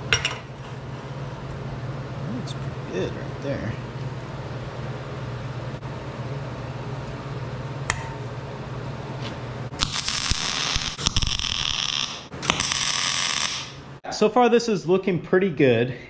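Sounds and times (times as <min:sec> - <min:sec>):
welder low hum: 0:02.0 - 0:14.0
welding arc crackling: 0:09.7 - 0:13.9.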